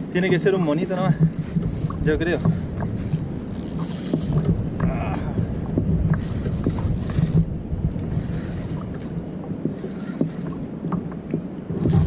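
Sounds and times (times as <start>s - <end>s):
water lapping at a kayak: 0.0s - 12.0s
wind rumbling on microphone: 0.0s - 12.0s
faint clicks: 6.1s - 12.0s.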